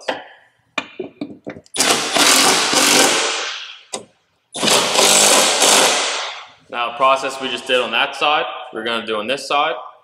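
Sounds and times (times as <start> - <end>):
impact wrench hammering: 0.8 - 6.5.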